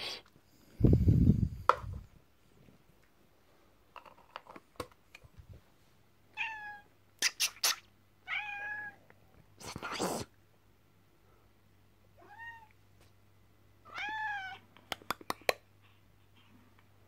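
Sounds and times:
cat meowing: 0:06.4 - 0:06.9, 0:08.3 - 0:09.0, 0:12.2 - 0:12.7, 0:13.9 - 0:14.6.

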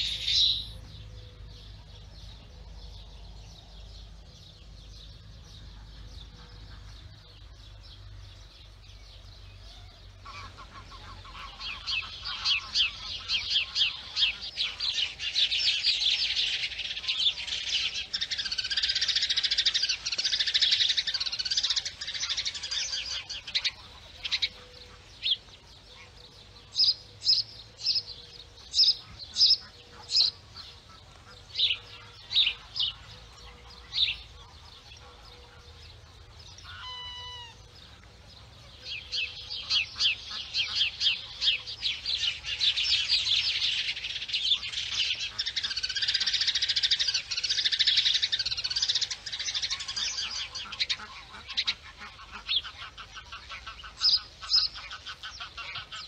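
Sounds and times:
small birds chirping: 0:00.0 - 0:56.0
waterfowl honk-like call: 0:10.2 - 0:15.1, 0:48.9 - 0:56.0.

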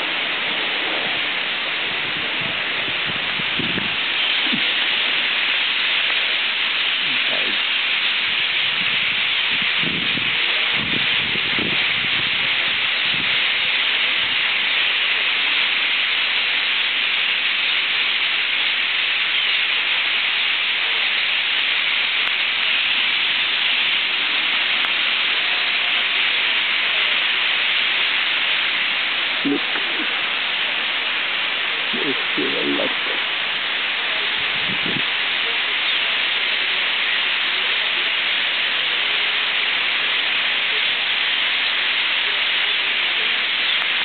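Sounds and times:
starling flock chattering: 0:28.7 - 0:30.8, 0:31.7 - 0:33.3, 0:40.6 - 0:44.0.

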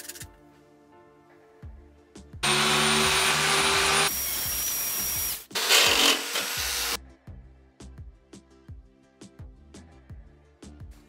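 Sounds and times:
angle grinder sanding metal: 0:02.4 - 0:07.0.

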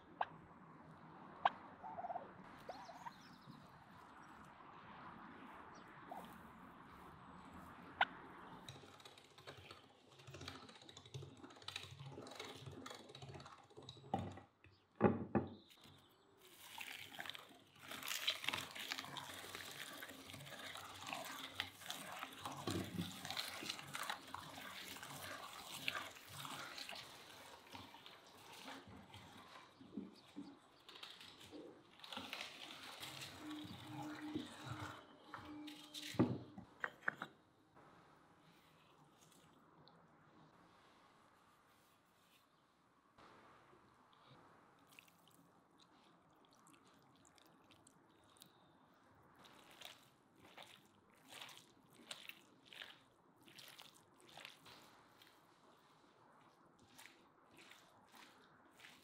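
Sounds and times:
meat grinder squelching: 0:15.6 - 0:35.9, 0:49.2 - 0:55.5, 0:56.2 - 0:59.0.

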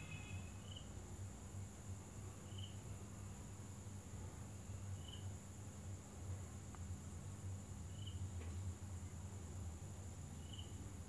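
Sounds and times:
faint high chirps: 0:00.0 - 0:00.9
steady low hum: 0:00.0 - 0:11.0.

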